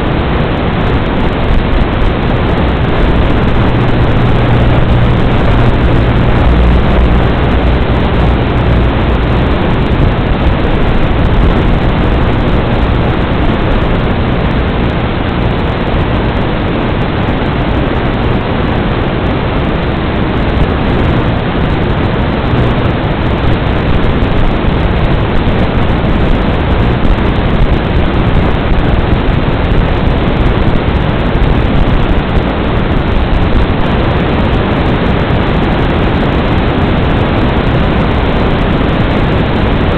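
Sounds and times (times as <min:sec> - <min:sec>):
faint low hum: 0:00.0 - 0:39.9
static hiss: 0:00.0 - 0:39.9.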